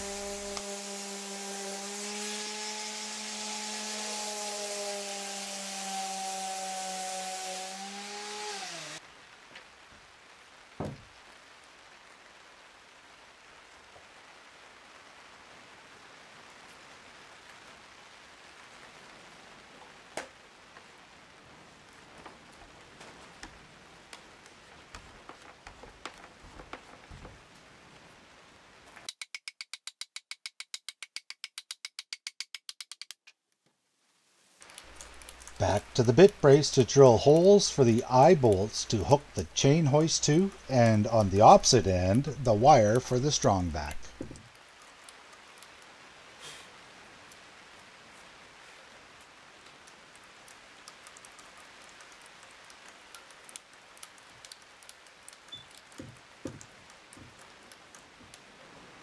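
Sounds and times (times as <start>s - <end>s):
wood crackling under auger bit: 0.0s - 9.0s, 23.4s - 27.4s, 34.6s - 45.8s, 49.8s - 58.6s
hammer tapping timber: 55.9s - 58.3s.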